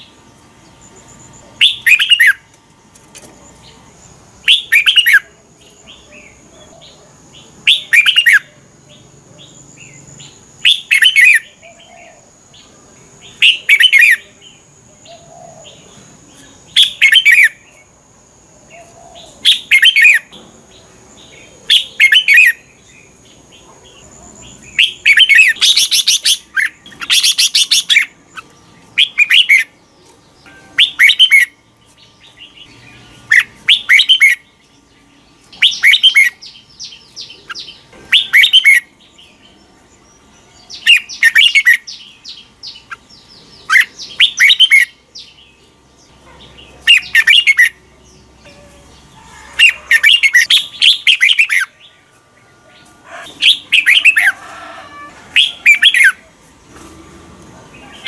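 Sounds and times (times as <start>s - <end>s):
bird singing whistled phrases: 33.3s - 34.4s.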